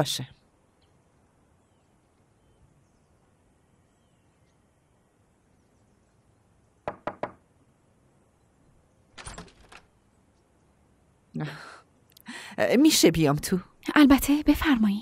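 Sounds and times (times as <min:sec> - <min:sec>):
knocking on a wooden door: 0:06.8 - 0:07.4.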